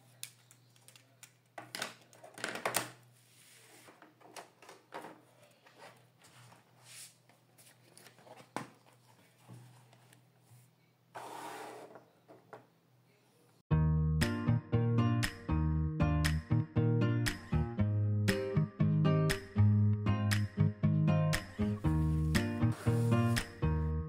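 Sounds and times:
notebook pages rustling: 5.6s - 11.4s, 21.8s - 23.5s.

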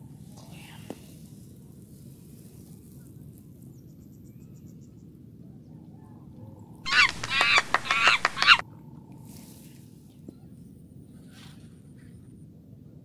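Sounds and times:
harsh bird-like calls: 6.9s - 8.6s.

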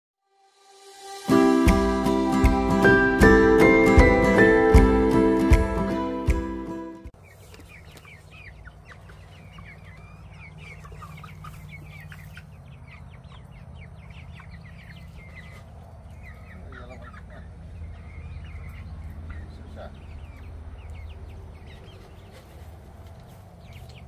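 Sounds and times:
young chickens peeping and clucking: 7.2s - 24.0s.

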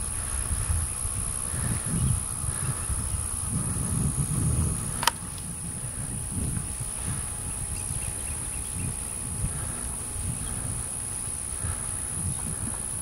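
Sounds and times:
honey bees buzzing: 0.0s - 13.0s
wind gusts on microphone: 0.0s - 13.0s
sharp click: 4.9s - 5.4s.

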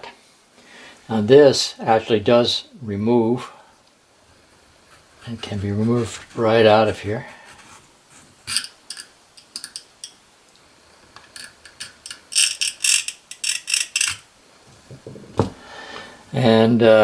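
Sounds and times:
steel parts clicking and scraping: 8.4s - 10.2s, 11.1s - 14.3s.

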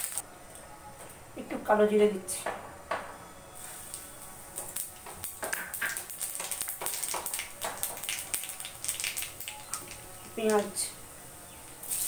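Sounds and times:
seeds crackling in hot oil: 0.0s - 0.2s, 3.6s - 12.0s.

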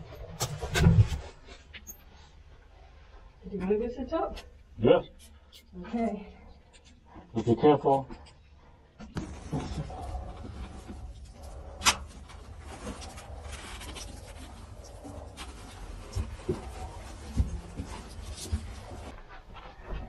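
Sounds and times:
scuffing and rustling of climbers: 9.2s - 20.0s.

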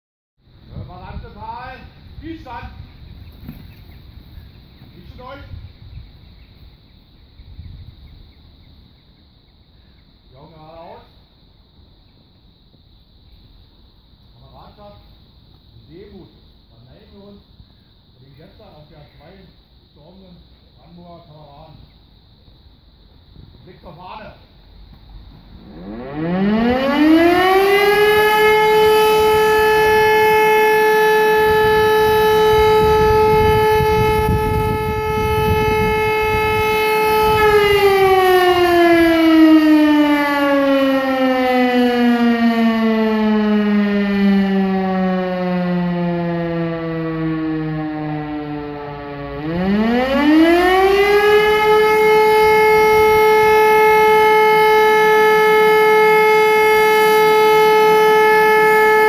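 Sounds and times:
fire siren wailing: 5.0s - 5.6s, 25.4s - 59.0s.

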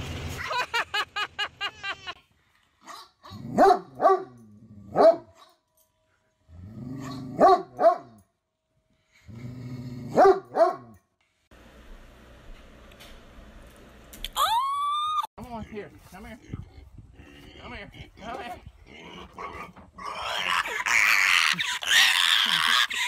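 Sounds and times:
dog barking: 2.8s - 5.5s, 7.0s - 8.2s, 10.1s - 11.0s
dog growling: 6.5s - 7.4s, 9.3s - 10.2s, 16.4s - 23.0s.

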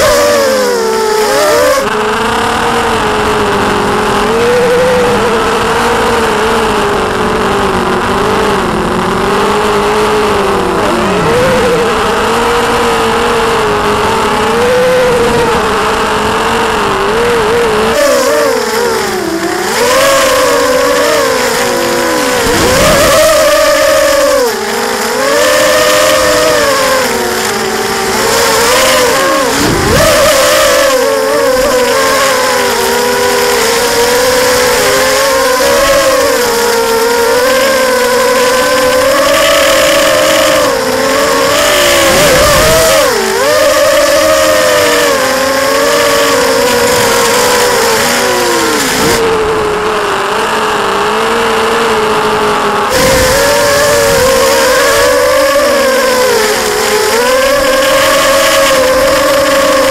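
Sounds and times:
quadcopter motors whining: 0.0s - 59.9s.

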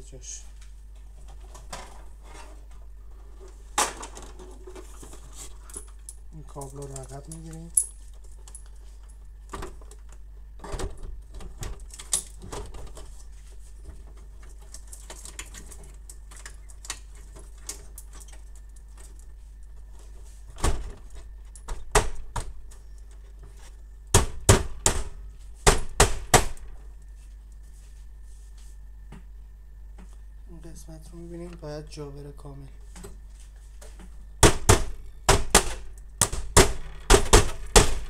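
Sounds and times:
plastic parts knocking and clicking: 34.4s - 38.0s.

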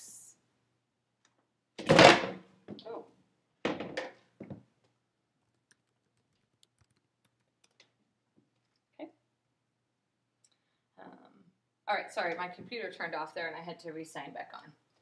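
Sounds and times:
loud thunk: 1.8s - 2.4s.

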